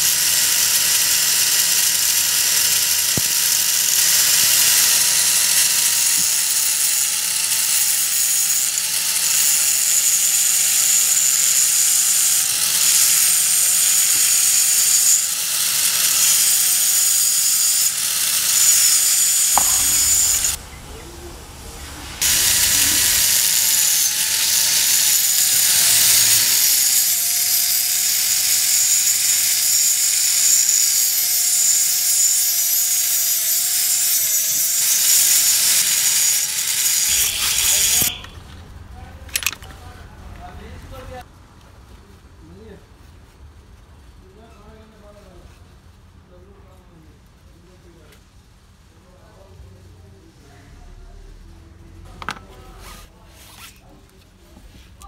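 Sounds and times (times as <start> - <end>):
angle grinder cutting metal: 0.0 - 20.6, 22.1 - 38.3.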